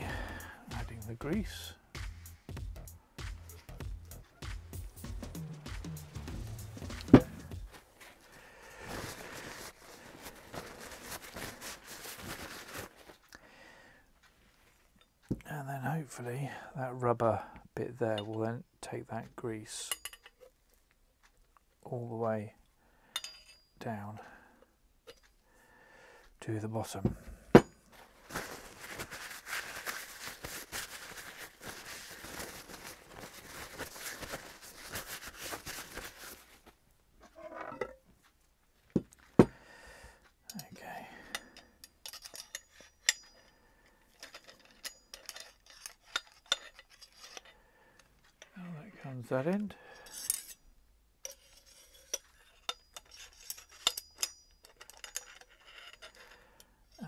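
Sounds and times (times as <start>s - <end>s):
gloved hands rubbing and rustling: 0.0s - 13.4s, 27.9s - 37.4s
metal parts clinking: 41.3s - 43.5s, 44.1s - 47.6s, 51.2s - 57.0s.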